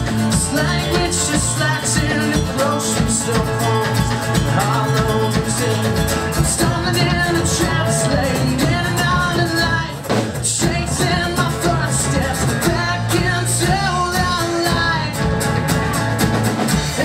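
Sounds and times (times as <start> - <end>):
man singing: 0.0 - 15.5, 16.7 - 17.0
acoustic guitar: 0.0 - 17.0
drums keeping a steady beat: 0.0 - 17.0
electric bass: 0.0 - 17.0.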